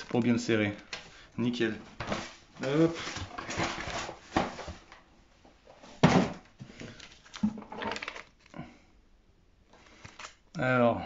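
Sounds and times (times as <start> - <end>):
paper and cardboard rustling: 0.0 - 5.0.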